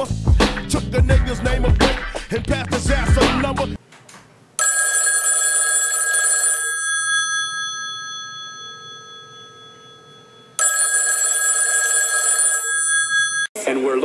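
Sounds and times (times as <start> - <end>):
telephone bell ringing: 4.6 - 13.6.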